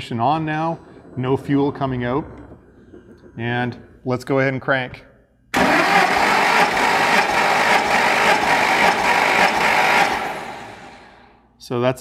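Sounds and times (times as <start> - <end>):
starter motor cranking engine: 5.6 - 11.2.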